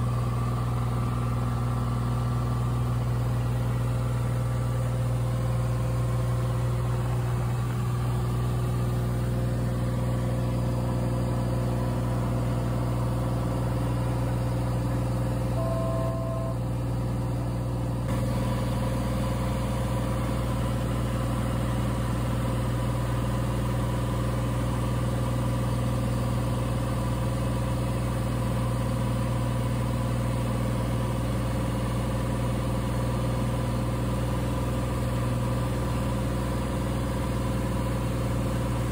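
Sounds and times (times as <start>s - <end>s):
short beep: 15.6s - 16.6s.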